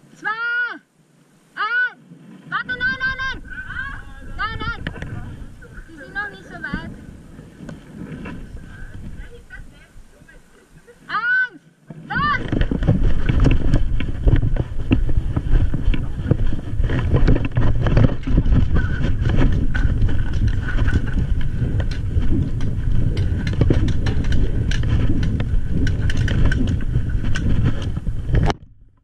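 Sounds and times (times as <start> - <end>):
camera rumbling against clothing: 2.3 - 11.2, 11.8 - 29.0
irregular knocks and clicks: 12.4 - 28.7.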